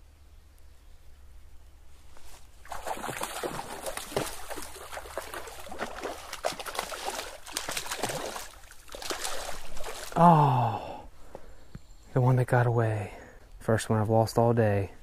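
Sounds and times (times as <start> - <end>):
fish splashing in water: 2.6 - 10.2.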